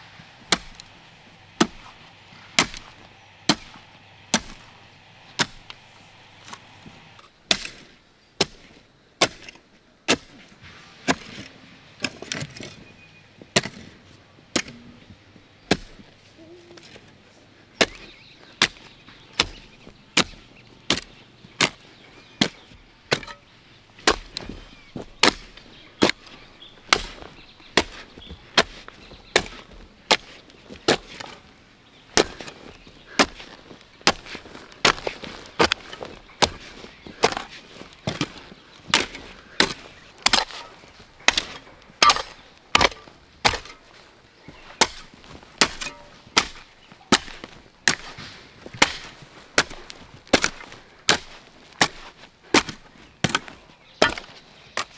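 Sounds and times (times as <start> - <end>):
chopping wood: 0.5 - 0.9, 1.6 - 2.0, 2.6 - 4.8, 5.4 - 5.8, 7.5 - 10.4, 15.7 - 16.0, 17.8 - 21.8, 24.0 - 31.4, 32.2 - 43.8, 44.7 - 54.9.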